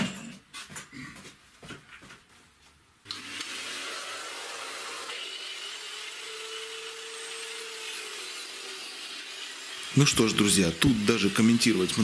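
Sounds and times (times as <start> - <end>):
vacuum cleaner running: 3.1 - 7.4, 9.9 - 12.0.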